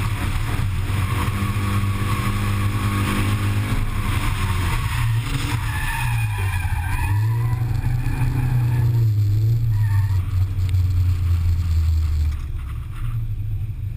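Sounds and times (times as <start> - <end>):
car engine pulling hard: 0.0 - 13.5
tyres squealing: 4.2 - 10.5.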